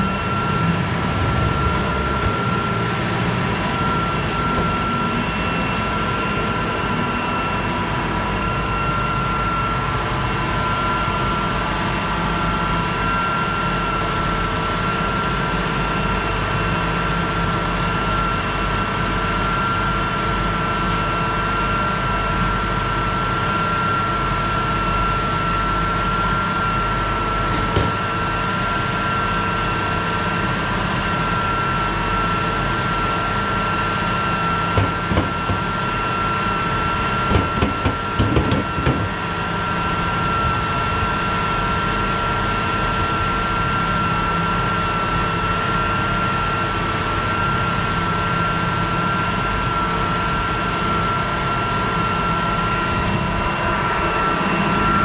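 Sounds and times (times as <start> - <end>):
machine whining and humming: 0.0 - 55.0
short knocks: 37.3 - 39.1.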